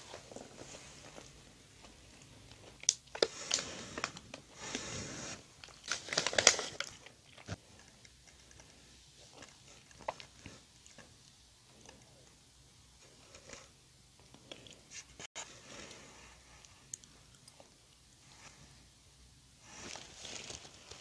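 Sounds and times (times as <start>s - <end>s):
crackly rustling: 0.0s - 12.3s, 19.6s - 21.0s
chewing and mouth sounds: 6.8s - 12.4s, 16.6s - 18.1s.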